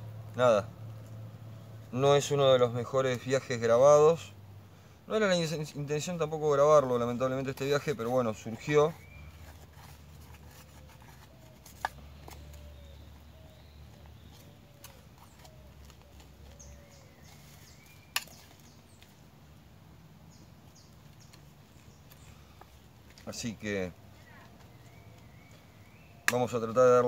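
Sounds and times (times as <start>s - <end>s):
faint bird calls: 8.6s - 19.3s, 23.8s - 27.0s.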